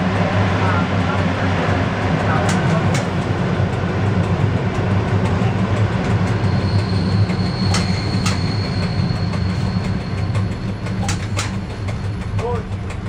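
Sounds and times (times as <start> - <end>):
train motors rumbling and humming: 0.0 - 13.0
high steady squeal: 5.4 - 12.6.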